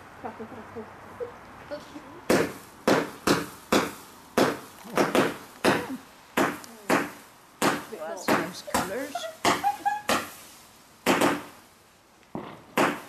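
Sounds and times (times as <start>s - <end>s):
firework cake bangs: 2.3s - 10.4s, 11.0s - 11.6s, 12.3s - 13.0s.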